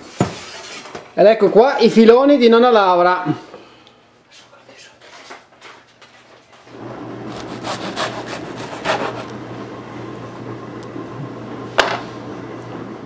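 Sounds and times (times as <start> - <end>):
knife sawing through bread crust: 7.2 - 9.3.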